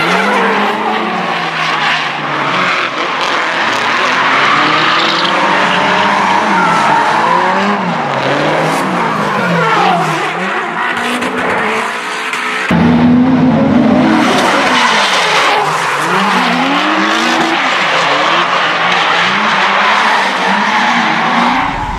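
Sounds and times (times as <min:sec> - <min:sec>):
car engines revving: 0:00.0 - 0:21.9.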